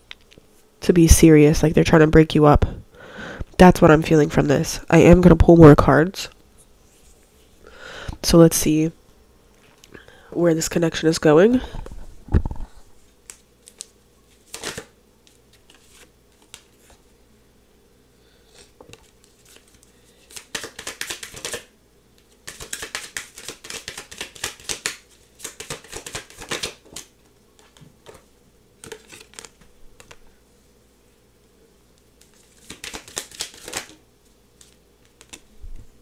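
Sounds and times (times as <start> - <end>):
cards being shuffled: 12.4 - 17.0, 18.5 - 30.2, 32.2 - 35.5.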